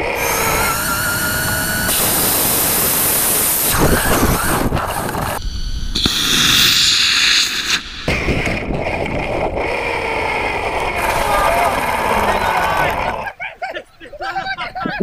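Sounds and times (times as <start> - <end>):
wind and road rush: 2.0 - 12.2.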